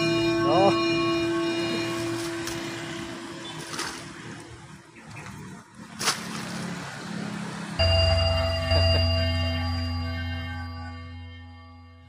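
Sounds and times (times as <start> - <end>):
background music with sustained tone: 0.0 - 4.4, 7.7 - 12.0.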